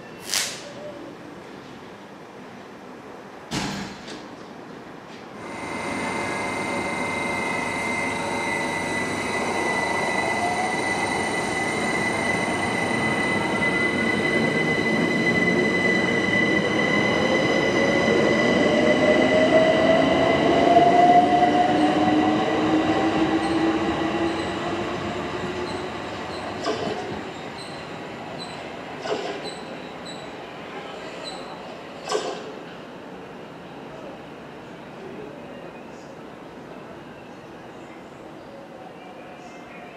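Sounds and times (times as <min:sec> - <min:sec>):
steady high-pitched tone: 0:05.4 - 0:19.6.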